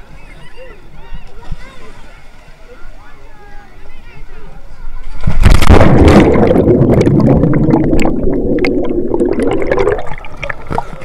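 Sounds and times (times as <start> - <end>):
water splashing and gurgling: 5.0 - 11.0.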